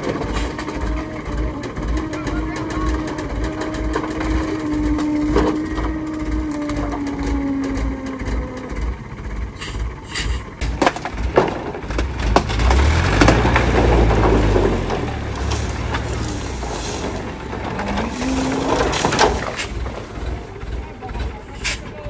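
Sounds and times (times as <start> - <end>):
bamboo poles clattering: 0.0 - 8.7, 10.1 - 20.6
truck engine running low: 0.0 - 22.0.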